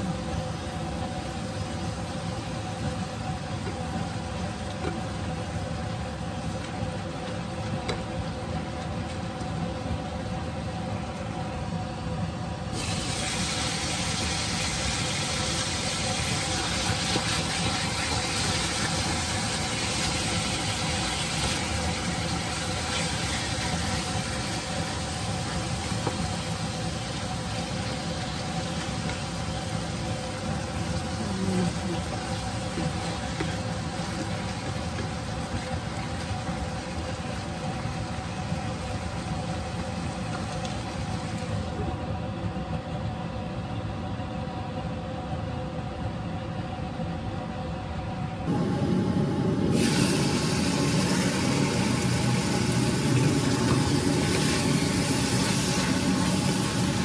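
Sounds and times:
steady mechanical hum: 0.0s - 57.0s
food sizzling in a frying pan: 12.7s - 41.8s, 49.6s - 57.0s.

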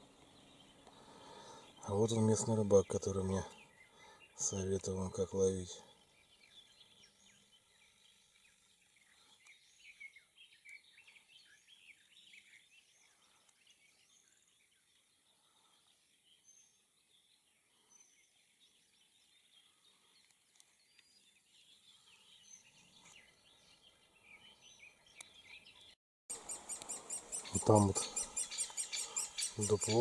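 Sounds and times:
bird chirping and twittering: 0.0s - 30.0s
quiet outdoor background noise: 0.0s - 30.0s.

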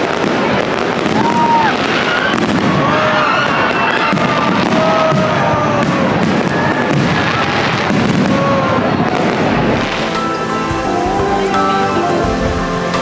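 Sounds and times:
fireworks crackling and bursting: 0.0s - 13.0s
music: 9.8s - 13.0s.

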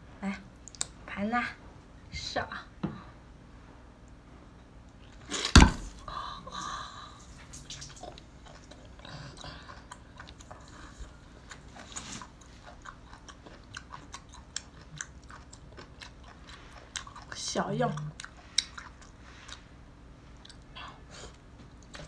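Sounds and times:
wet smacking chewing: 7.2s - 19.7s.

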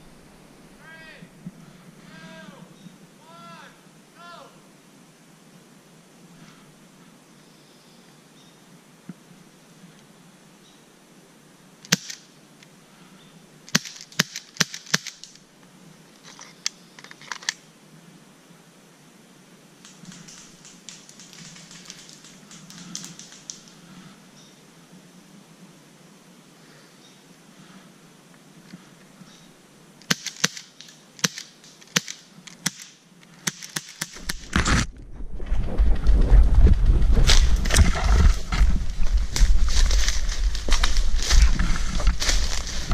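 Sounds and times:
clicking and rustling: 19.8s - 23.8s.

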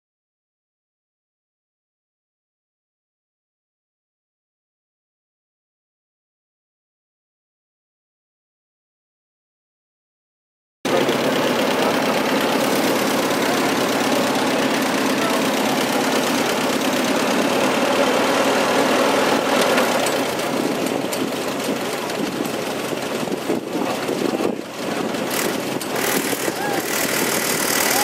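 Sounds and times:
tractor engine idling: 10.9s - 28.0s.

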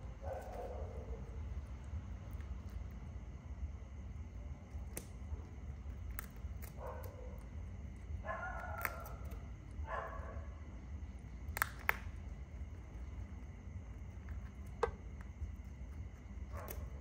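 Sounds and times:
low background rumble: 0.0s - 17.0s
dog barking: 0.1s - 1.4s, 6.7s - 7.4s, 8.2s - 10.6s, 16.5s - 17.0s.

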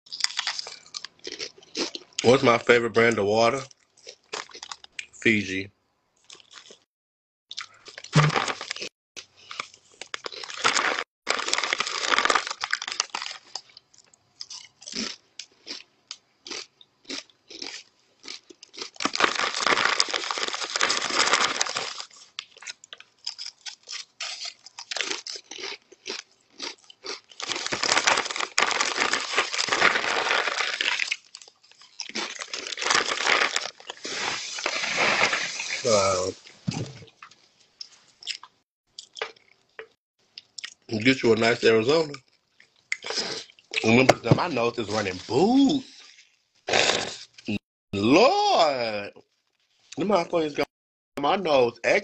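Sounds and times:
crunching and chewing chips: 0.1s - 2.5s, 3.6s - 5.1s, 6.2s - 6.8s, 7.5s - 40.9s, 42.0s - 47.5s
foil chip bag crinkling: 9.5s - 13.8s, 18.7s - 25.8s, 26.5s - 35.9s.

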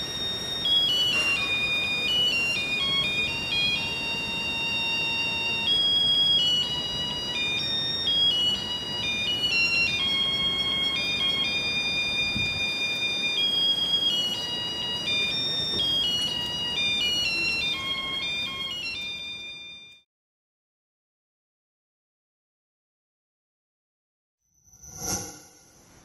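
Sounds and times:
electronic beeping melody: 0.0s - 20.0s.

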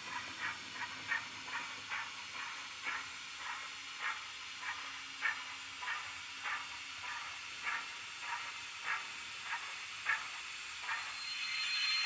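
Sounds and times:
steady steam hiss: 3.4s - 12.0s
thin high tone: 11.0s - 12.0s.

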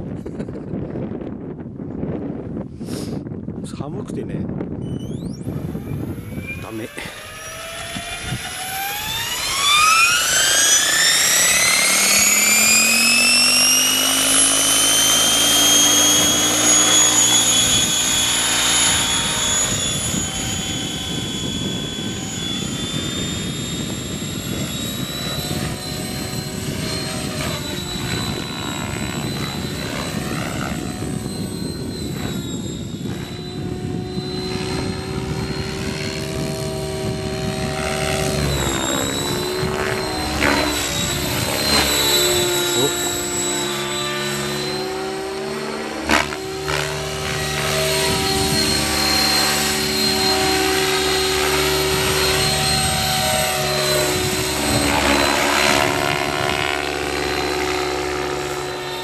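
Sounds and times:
low rotor hum: 0.0s - 59.0s
rc helicopter motor whine: 4.1s - 59.0s.

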